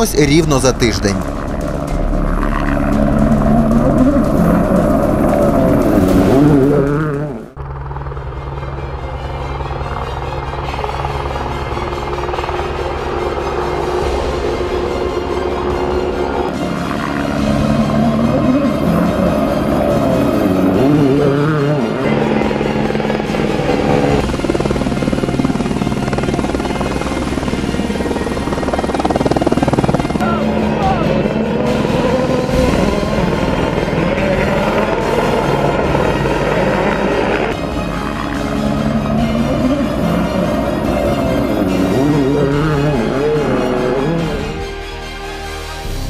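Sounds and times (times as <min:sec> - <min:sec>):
helicopter rotor chopping: 0:00.0 - 0:45.0
music: 0:00.0 - 0:46.0
steady pulsing sound: 0:00.0 - 0:46.0
rally car engine revving: 0:01.3 - 0:07.6, 0:17.4 - 0:24.2, 0:29.3 - 0:37.7, 0:38.4 - 0:44.6.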